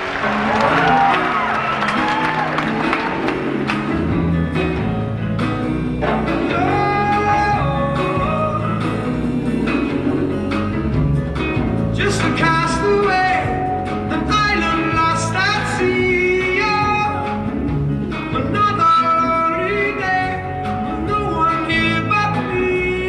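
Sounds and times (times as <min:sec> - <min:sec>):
acoustic band music: 0:00.0 - 0:23.0
guitar: 0:00.0 - 0:23.0
upright bass: 0:00.0 - 0:23.0
hand drum: 0:02.0 - 0:18.7.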